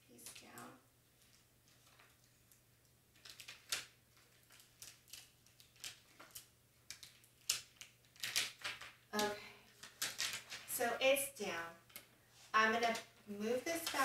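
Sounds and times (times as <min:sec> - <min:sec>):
paper liner crinkling as peeled: 0:01.2 - 0:10.8.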